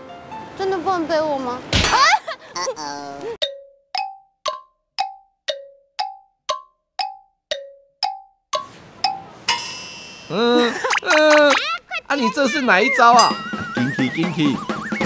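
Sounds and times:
street noise: 0.0s - 3.4s, 8.6s - 15.0s
comic plinked music notes: 3.4s - 11.0s, 12.5s - 15.0s
wavering warble: 12.5s - 15.0s.

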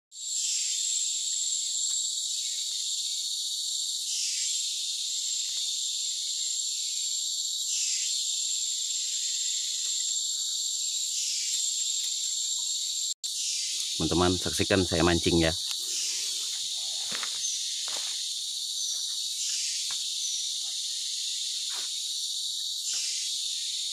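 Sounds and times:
rainforest insects droning: 0.1s - 23.9s.

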